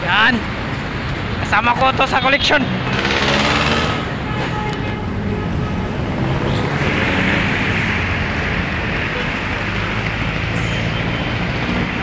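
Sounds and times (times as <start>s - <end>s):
city road traffic: 0.0s - 12.0s.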